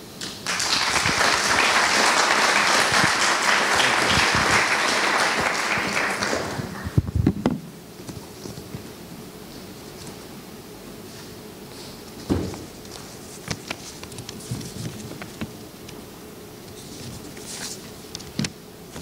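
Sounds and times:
audience applauding: 0:00.2 - 0:07.0.

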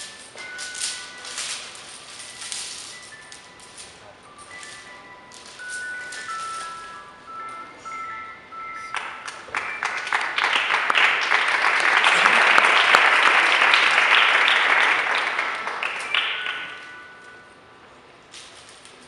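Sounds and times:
chime-like music notes: 0:00.0 - 0:18.0
audience applauding: 0:08.9 - 0:16.8.

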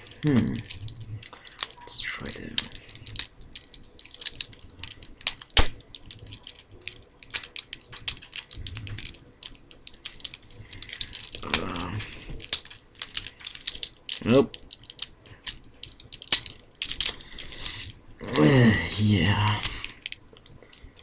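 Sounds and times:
plastic toy clicks and snaps: 0:00.2 - 0:21.0.

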